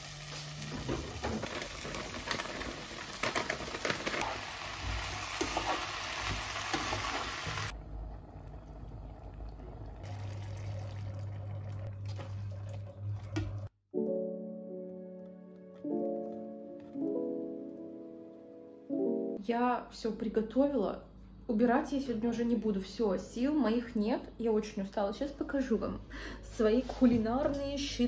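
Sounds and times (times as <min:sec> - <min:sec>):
vegetables frying in a pot: 0:00.0 - 0:07.8
spatula stirring and scraping: 0:05.4 - 0:07.2
quiet simmering: 0:07.7 - 0:13.7
soft music: 0:13.9 - 0:19.6.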